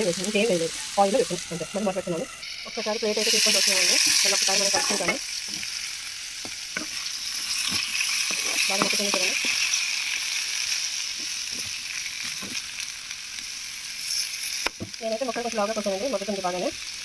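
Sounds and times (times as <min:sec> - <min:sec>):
potatoes sizzling in hot oil: 0:00.0 - 0:17.0
metal ladle scraping a pan: 0:03.2 - 0:05.7.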